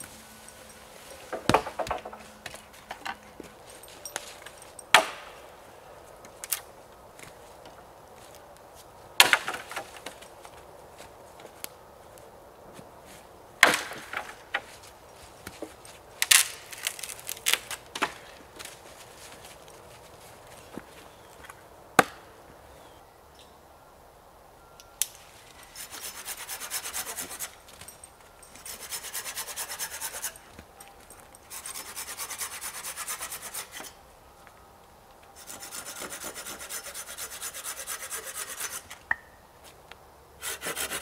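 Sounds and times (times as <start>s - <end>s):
wood splintering crackles: 16.2s - 18.3s
axe chopping wood: 22.0s - 22.3s.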